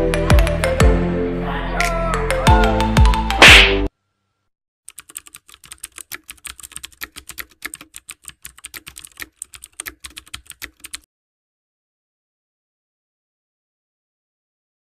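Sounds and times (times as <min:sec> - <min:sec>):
computer keyboard typing: 0:04.9 - 0:11.1.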